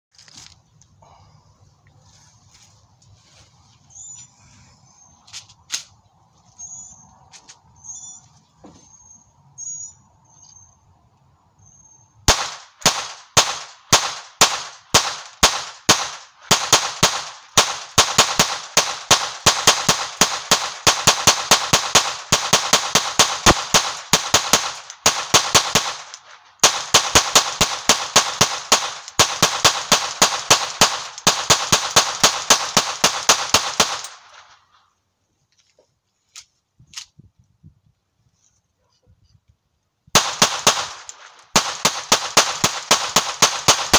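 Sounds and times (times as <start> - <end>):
pistol firing shots: 12.3 - 34.4, 40.2 - 43.9.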